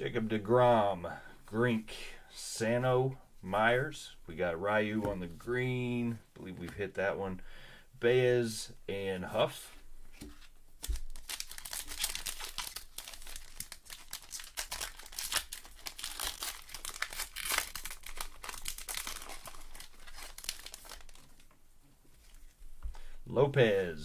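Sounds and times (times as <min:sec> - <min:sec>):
plastic wrapper crinkling: 0:10.8 - 0:22.6.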